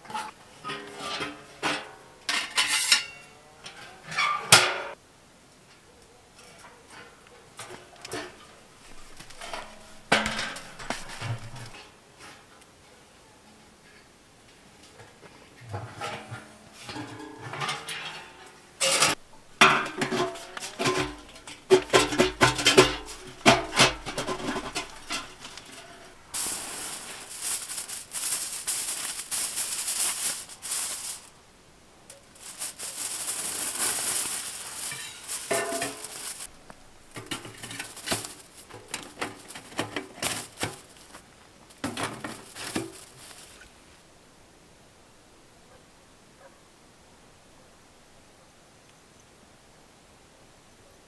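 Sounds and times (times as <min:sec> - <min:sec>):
sheet metal clanks and scrapes: 0:00.0 - 0:05.0, 0:06.4 - 0:12.5, 0:15.6 - 0:26.4, 0:34.8 - 0:36.5, 0:37.1 - 0:41.0
foil and plastic crinkling: 0:08.9 - 0:11.8, 0:20.0 - 0:31.4, 0:32.1 - 0:43.7.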